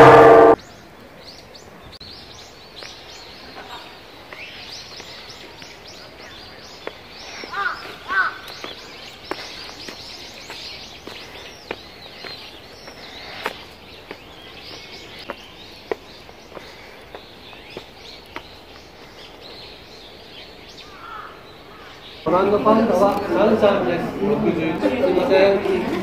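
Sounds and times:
birds chirping: 0.0s - 26.0s
outdoor ambience: 0.0s - 26.0s
footsteps on pavement and wood: 4.3s - 20.2s.

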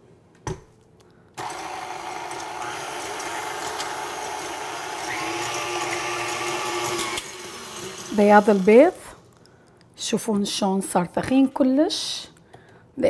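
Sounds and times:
stand mixer motor running: 1.4s - 8.8s.

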